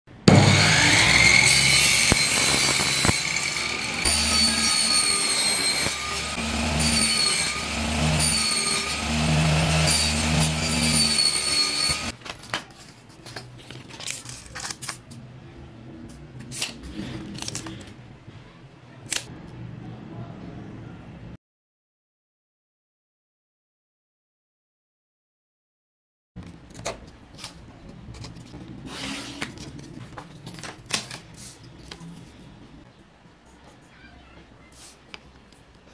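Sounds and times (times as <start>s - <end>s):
table saw cutting plywood: 0.2s - 12.2s.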